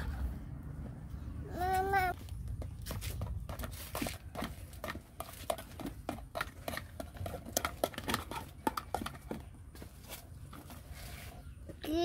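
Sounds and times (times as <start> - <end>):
plastic toys clicking and clattering: 4.8 - 9.6.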